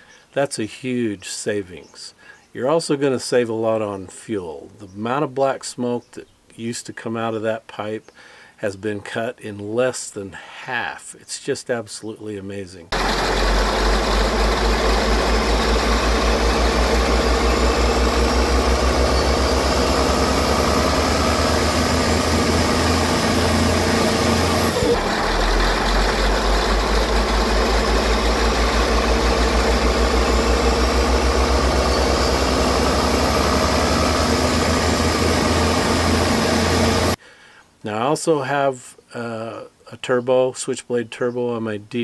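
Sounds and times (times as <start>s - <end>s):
heavy diesel engine revving: 13.0s - 37.2s
turbocharger whine: 13.0s - 37.2s.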